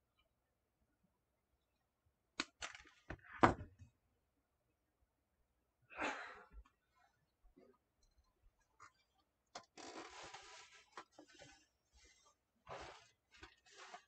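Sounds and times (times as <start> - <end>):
plastic rustling: 9.9 - 14.0.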